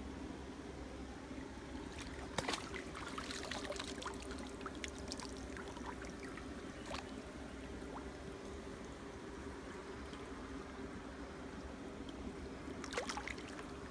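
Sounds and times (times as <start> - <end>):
stream water splashing and trickling: 1.5 - 10.7, 12.0 - 13.9
small splashes and drips: 1.8 - 7.2, 12.8 - 13.9.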